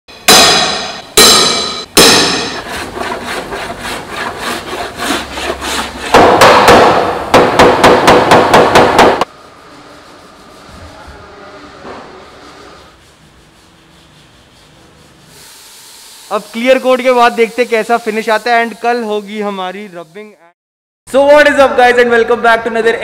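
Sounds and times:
hammer on sheet metal: 0.2s - 3.2s, 5.5s - 9.3s.

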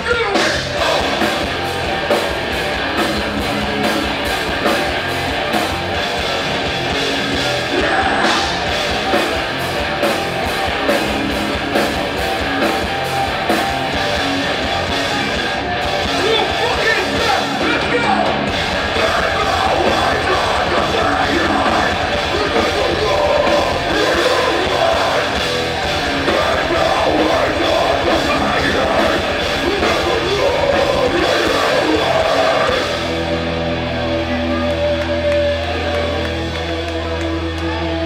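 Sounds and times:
live punk band playing: 0.0s - 38.0s
ringing guitar chords: 0.4s - 38.0s
pounding drums: 16.1s - 33.1s.

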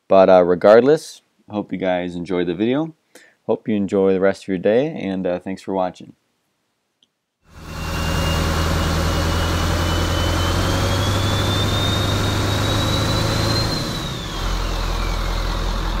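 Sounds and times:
high engine whine: 7.5s - 16.0s
diesel truck engine running: 7.6s - 16.0s.

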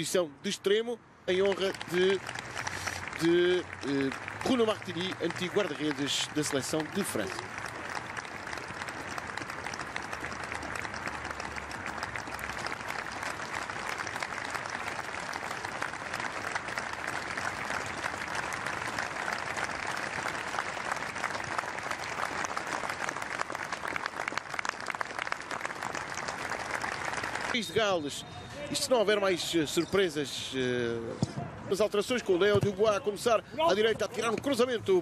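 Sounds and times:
crowd applauding: 1.3s - 28.1s.

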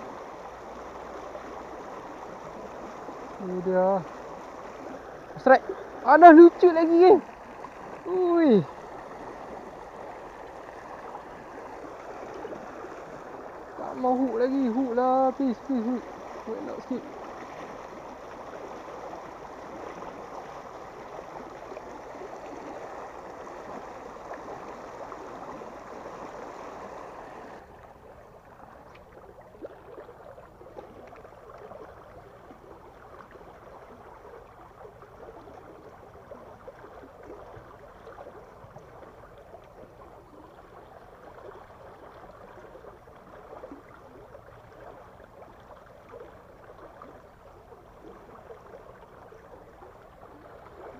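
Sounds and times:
water rushing from sluice gate: 0.0s - 30.1s.

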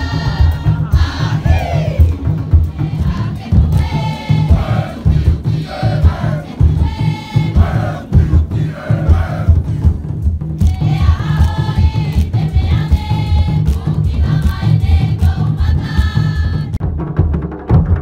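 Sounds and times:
group singing in chorus: 0.0s - 16.8s
heavy drum beat: 0.0s - 18.0s.

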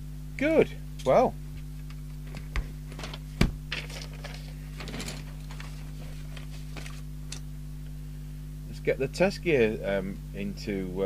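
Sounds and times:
steady low hum: 0.0s - 11.0s
paper rustling: 3.8s - 7.1s.

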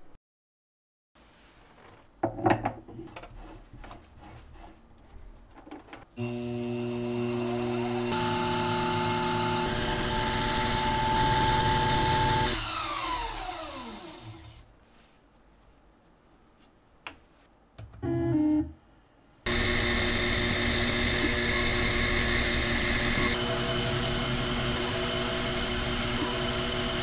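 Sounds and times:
end mill cutting brass: 6.2s - 14.3s, 19.5s - 27.0s
spindle motor whine: 6.2s - 14.3s, 19.5s - 27.0s.

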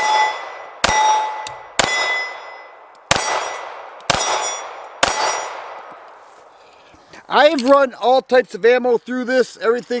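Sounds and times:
pistol shots: 0.0s - 6.0s.

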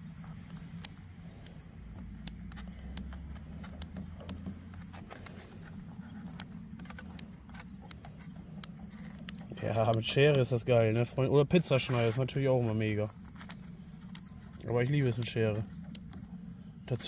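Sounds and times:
low steady hum: 0.0s - 17.0s
scissors snipping pizza: 0.1s - 11.1s.

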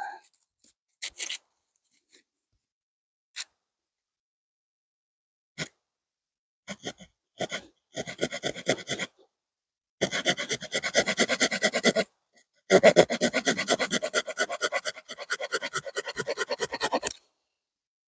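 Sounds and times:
small saw cutting a stick: 10.0s - 12.0s, 12.7s - 17.2s.

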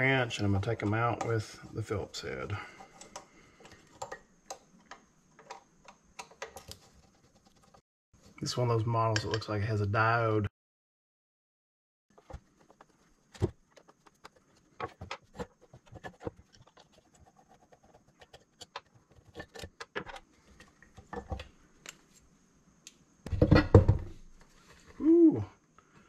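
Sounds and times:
metal clatter and knocking: 23.3s - 24.2s.

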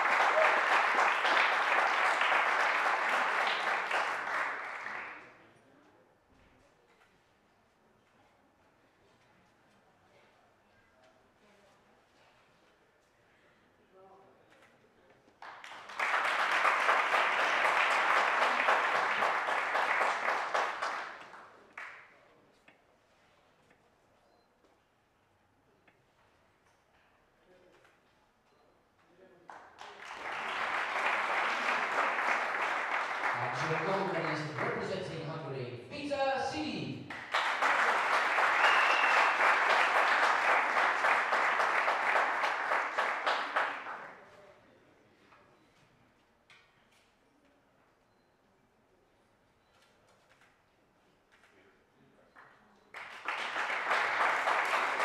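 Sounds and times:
sharp clap: 0.0s - 5.2s, 15.4s - 22.0s, 37.1s - 44.2s, 53.0s - 55.0s
audience applauding: 0.0s - 5.4s, 15.4s - 22.0s, 29.5s - 35.4s, 37.1s - 44.4s, 52.9s - 55.0s.

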